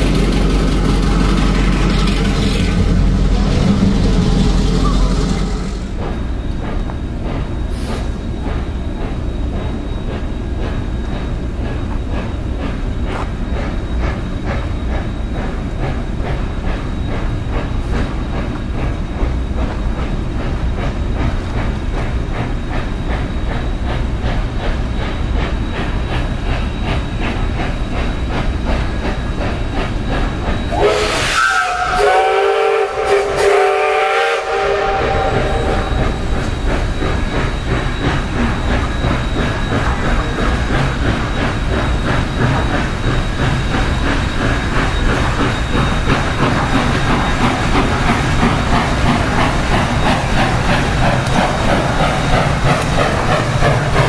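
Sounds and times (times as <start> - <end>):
steam locomotive exhaust chuffing: 0.0 - 54.0
train rumble: 0.0 - 54.0
steam whistle chord: 30.7 - 36.3.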